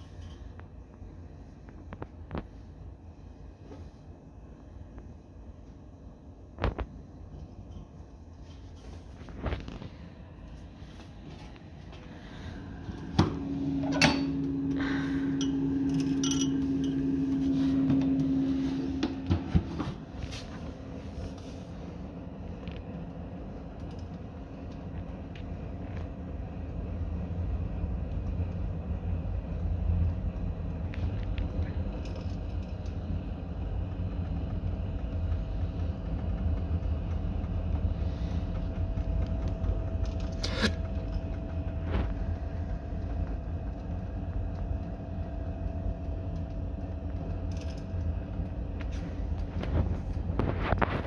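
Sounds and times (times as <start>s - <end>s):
fire rumbling in wood stove: 0.0s - 51.0s.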